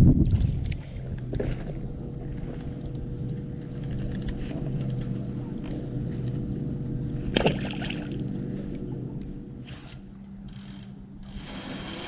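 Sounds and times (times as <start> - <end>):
electric trolling motor humming: 0.9 - 12.0
fish splashing into water: 7.3 - 8.2.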